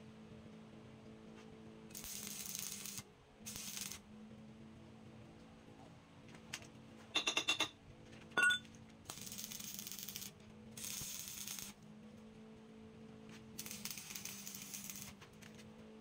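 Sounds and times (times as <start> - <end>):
arc welder crackling hiss: 1.9 - 4.0, 9.1 - 11.8, 13.5 - 15.6
ringing metal clink: 7.2 - 7.7, 8.4 - 8.6.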